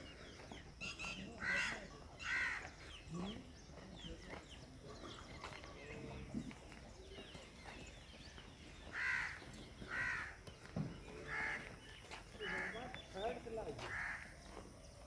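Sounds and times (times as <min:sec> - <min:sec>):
crows cawing: 0:01.3 - 0:02.8, 0:08.9 - 0:10.4, 0:11.2 - 0:11.8, 0:12.4 - 0:13.0, 0:13.8 - 0:14.5.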